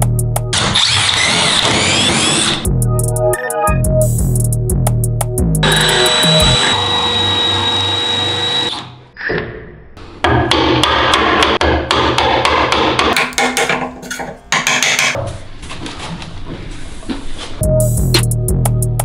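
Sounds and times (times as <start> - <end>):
hammer striking wood chisel: 10.2 - 15.2.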